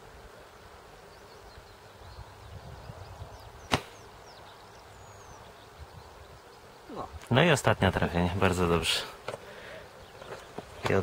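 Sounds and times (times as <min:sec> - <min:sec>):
wind rumble on microphone: 0:02.0 - 0:03.7, 0:05.5 - 0:06.4
airsoft rifle shot: 0:03.7 - 0:04.0.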